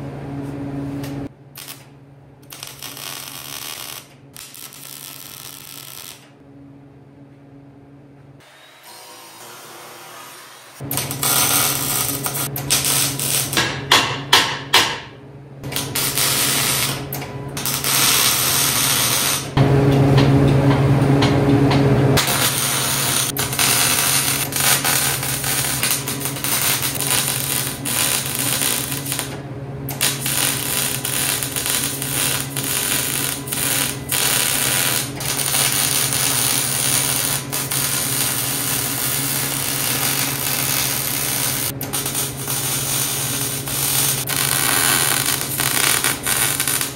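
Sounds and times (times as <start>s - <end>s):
welding arc crackling and sizzling: 1.6s - 6.4s, 8.9s - 13.7s, 15.6s - 19.6s, 22.2s - 46.9s
steady low hum: 15.1s - 46.9s.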